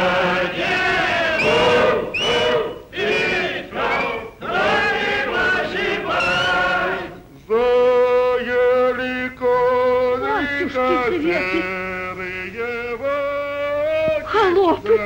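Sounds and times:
person singing folk-style tune: 7.4s - 15.0s.

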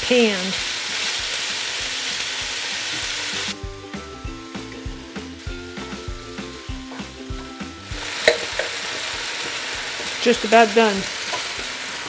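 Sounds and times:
chicken sizzling in oil: 0.0s - 12.0s
background music with beat: 0.6s - 10.1s.

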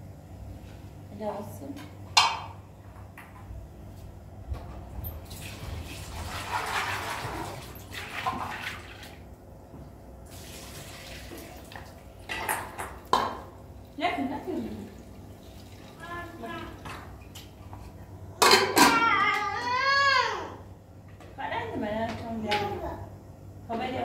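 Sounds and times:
water running: 5.0s - 9.3s, 10.2s - 17.5s.

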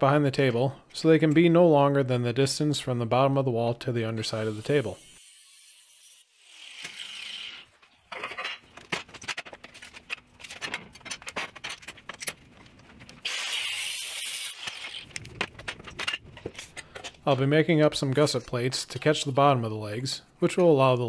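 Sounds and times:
angle grinder cutting steel: 4.4s - 7.7s.

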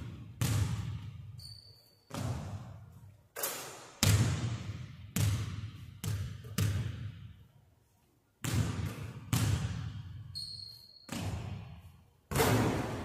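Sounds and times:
basketball bouncing on hardwood floor: 0.0s - 1.3s, 2.1s - 2.8s, 4.0s - 7.3s, 8.4s - 10.0s, 11.1s - 11.7s
brief high squeak: 1.4s - 2.1s, 10.3s - 11.1s.

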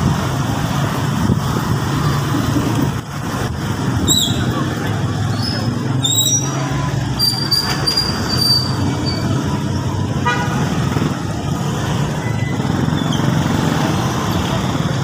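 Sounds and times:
vehicle engine with road noise: 0.0s - 15.0s
car horn beep: 10.2s - 10.6s.

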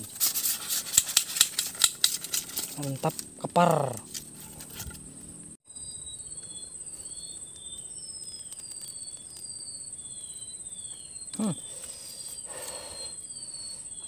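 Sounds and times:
high-pitched insect drone: 0.0s - 14.0s
whistled bird notes sliding down: 5.7s - 14.0s.

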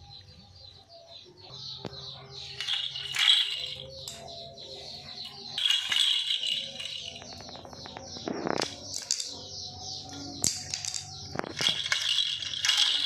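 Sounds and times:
small object rattling on tiled floor: 2.5s - 4.5s, 5.2s - 13.0s.

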